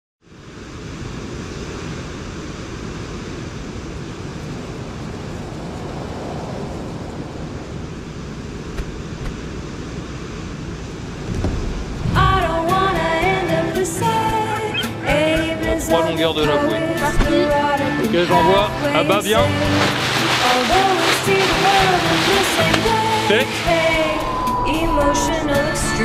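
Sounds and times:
sea water rushing: 0:00.4 - 0:26.0
wind rushing: 0:11.0 - 0:13.8, 0:19.6 - 0:26.0.

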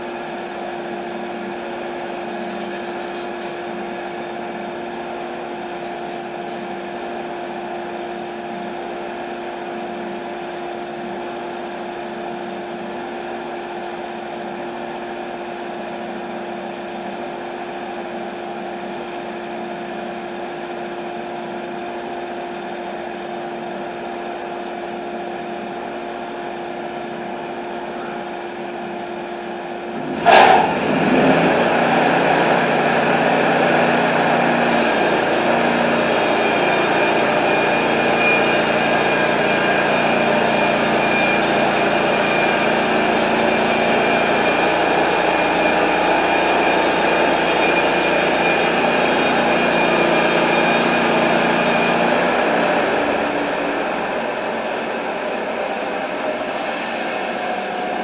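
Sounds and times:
sawmill machinery humming: 0:00.0 - 0:58.0
loud burst of machine noise: 0:29.9 - 0:58.0.

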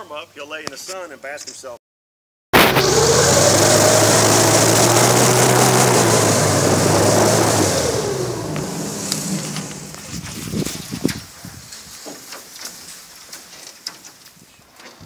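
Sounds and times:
airboat engine and propeller: 0:02.8 - 0:10.2.

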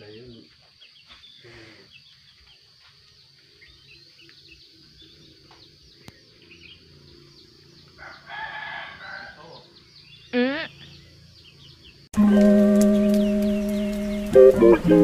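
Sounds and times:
rooster crowing: 0:08.0 - 0:09.7
high-pitched bird chirps: 0:10.2 - 0:11.0.

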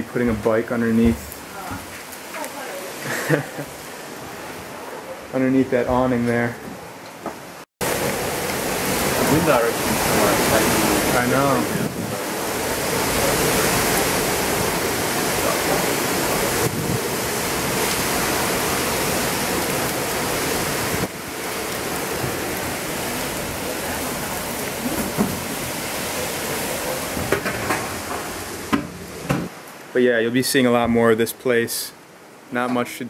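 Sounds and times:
heavy rain: 0:00.0 - 0:33.0
strong wind: 0:07.8 - 0:29.6.

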